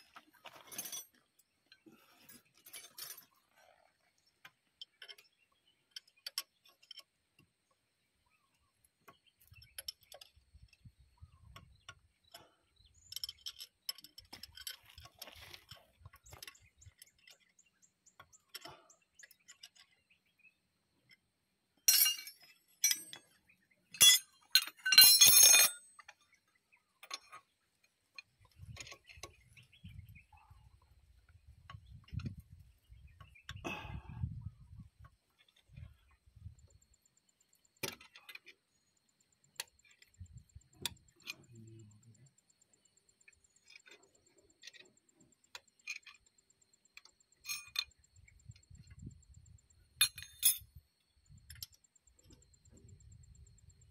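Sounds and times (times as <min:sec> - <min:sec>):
metal tools clinking on steel: 0:00.1 - 0:03.5, 0:12.3 - 0:17.5, 0:21.8 - 0:26.3, 0:47.0 - 0:49.1, 0:50.0 - 0:50.8.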